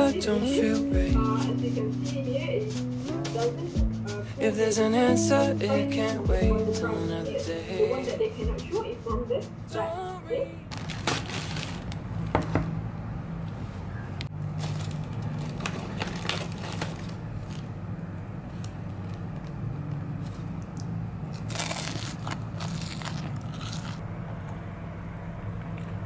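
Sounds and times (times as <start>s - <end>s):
plastic and paper bags crinkling: 10.6s - 12.1s, 14.5s - 17.7s, 21.3s - 24.0s.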